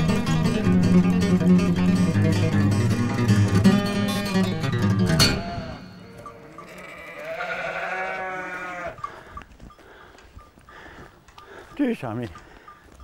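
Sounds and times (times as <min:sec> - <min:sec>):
acoustic guitar strumming: 0:00.0 - 0:08.8
sheep bleating: 0:05.7 - 0:09.2.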